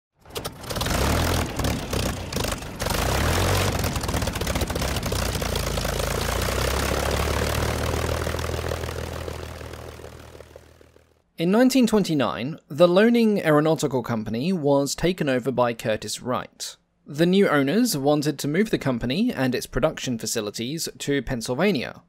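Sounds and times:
propeller aircraft engine drone: 0.2 - 11.2.

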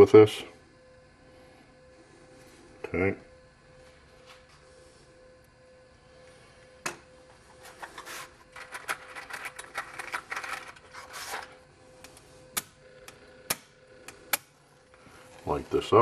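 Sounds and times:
faint steady hum: 0.0 - 16.0
rustling and scraping: 7.4 - 11.6.

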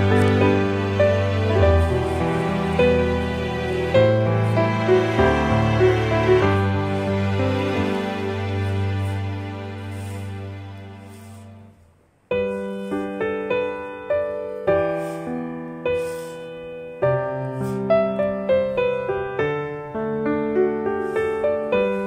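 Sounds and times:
gentle piano tune: 0.0 - 22.0.

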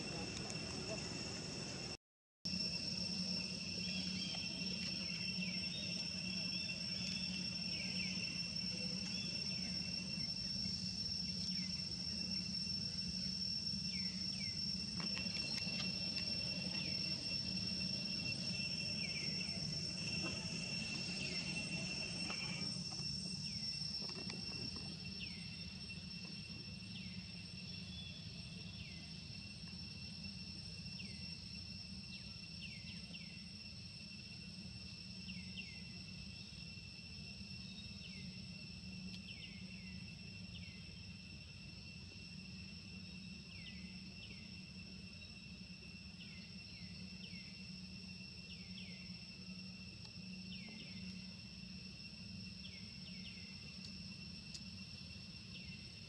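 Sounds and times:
low hum: 0.0 - 27.8
high-pitched insect chorus: 0.0 - 56.0.

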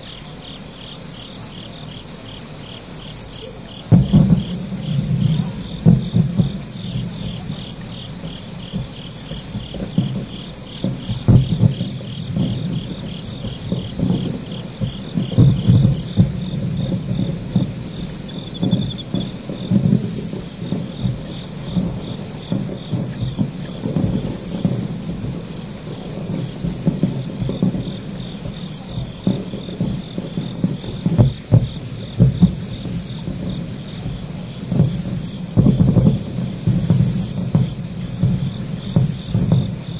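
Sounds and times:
insect high trill: 0.0 - 23.0
distant fireworks booming: 0.0 - 39.9
insect high chirp: 0.0 - 39.9.

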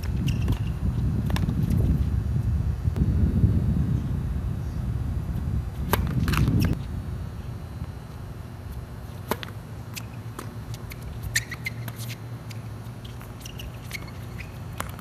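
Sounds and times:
wind rumble on microphone: 0.0 - 8.7
racket hitting tennis ball: 5.8 - 6.8, 9.1 - 12.2
tennis ball bouncing: 5.9 - 6.8, 9.2 - 15.0.

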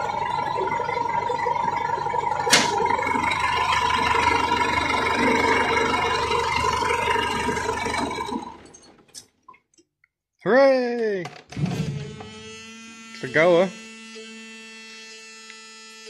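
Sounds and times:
tractor diesel engine running: 0.0 - 9.2.

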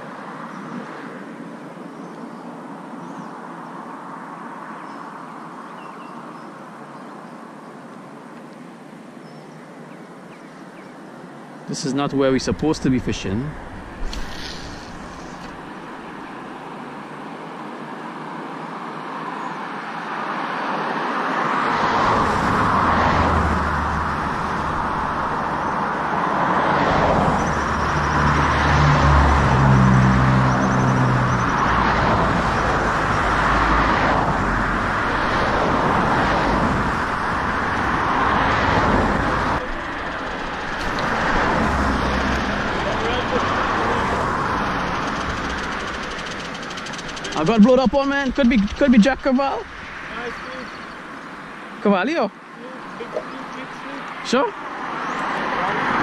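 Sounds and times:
cars passing on bridge: 0.0 - 9.0, 9.8 - 56.0
vehicle with low engine note: 38.9 - 50.9.

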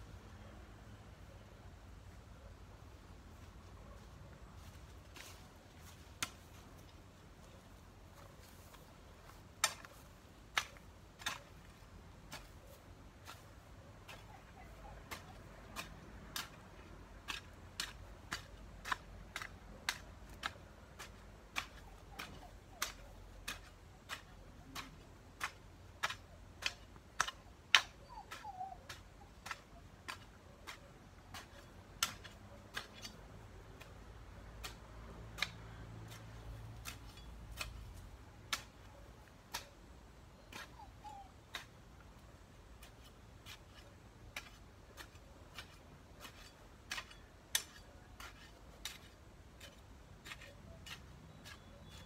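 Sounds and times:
hoe chopping into soil: 8.6 - 14.4, 15.1 - 52.0.

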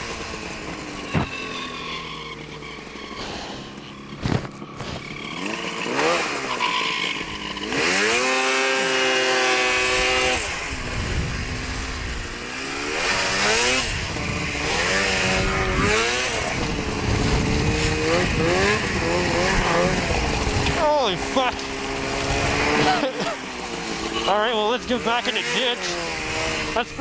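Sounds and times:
snowmobile engine revving: 0.0 - 27.0
wind on microphone: 13.8 - 20.8.

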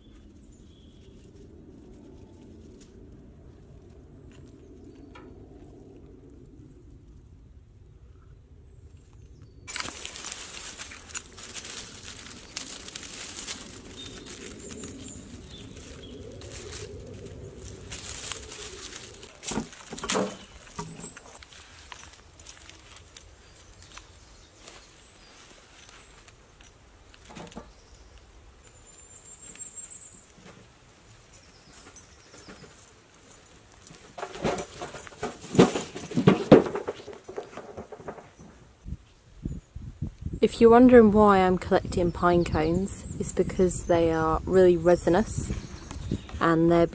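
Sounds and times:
dry leaves and twigs crackling: 0.0 - 7.3, 8.8 - 39.2
cones dropping into metal wheelbarrow: 9.7 - 15.2, 17.7 - 23.0, 34.0 - 38.5
footsteps on dirt path: 9.7 - 27.1
wheelbarrow rattling and clunking: 17.0 - 23.2, 30.4 - 38.7.

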